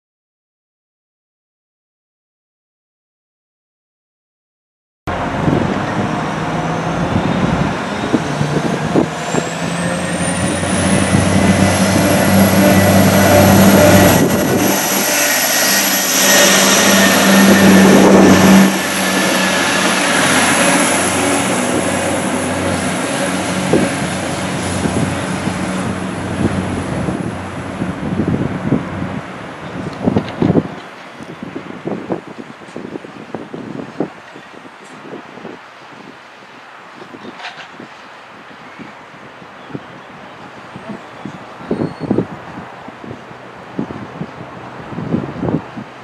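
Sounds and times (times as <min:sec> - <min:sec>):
high whine: 0:05.1 - 0:29.1
wheel-on-rail noise: 0:05.1 - 0:31.4
diesel train engines running: 0:05.1 - 0:31.9.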